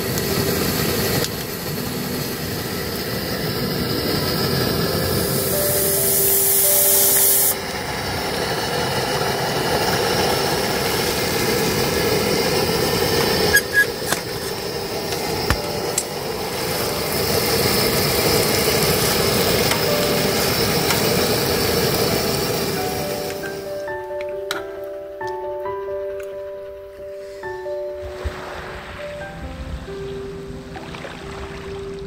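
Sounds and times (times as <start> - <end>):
gas stove hiss: 0.0 - 26.0
stew sizzling in a pan: 4.6 - 23.9.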